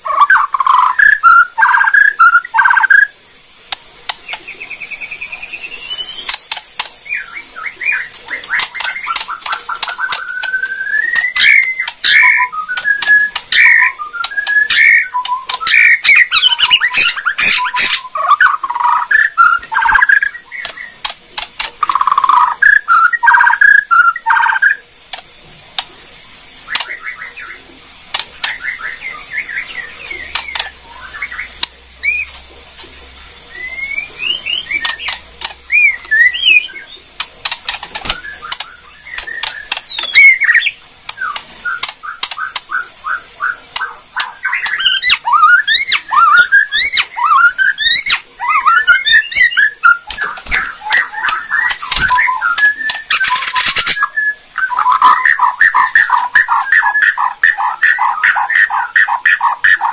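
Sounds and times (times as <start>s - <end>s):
bird whistling song: 0.0s - 3.2s, 4.2s - 21.0s, 21.8s - 27.6s, 33.5s - 37.0s, 38.0s - 59.9s
bird clicking crackles: 3.7s - 4.5s, 6.2s - 7.0s, 8.1s - 15.7s, 18.7s - 22.8s, 26.7s - 27.0s, 28.1s - 28.6s, 30.3s - 30.8s, 34.8s - 36.5s, 37.2s - 40.4s, 41.0s - 42.7s, 50.1s - 54.0s.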